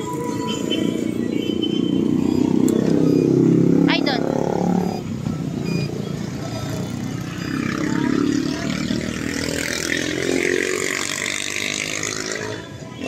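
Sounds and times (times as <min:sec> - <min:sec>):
motor scooter engine revving: 0:00.2 - 0:13.0.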